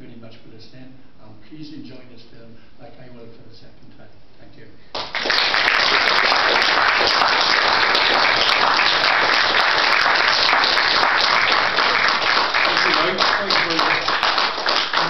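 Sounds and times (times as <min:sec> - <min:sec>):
audience applause: 0:05.0 - 0:15.0.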